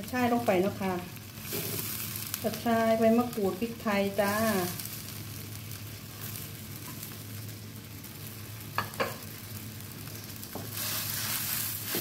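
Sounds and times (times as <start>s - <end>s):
curry sizzling in a wok: 0.0s - 12.0s
wooden spatula stirring: 10.6s - 12.0s.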